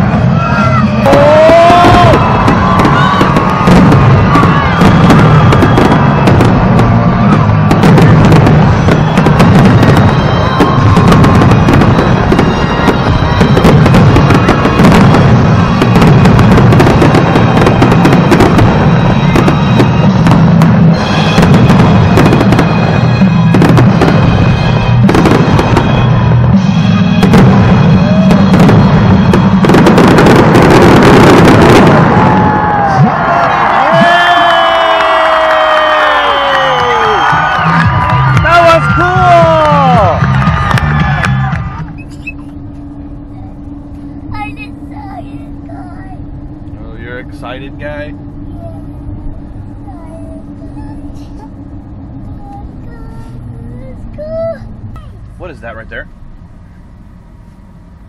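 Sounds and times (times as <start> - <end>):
music playing: 0.0 - 32.0, 36.0 - 45.1
fireworks bangs and crackling: 0.0 - 56.4.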